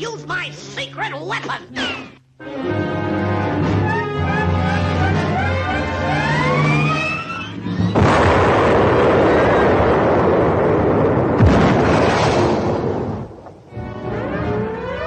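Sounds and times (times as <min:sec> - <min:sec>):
cartoon explosion: 0:05.4 - 0:13.4.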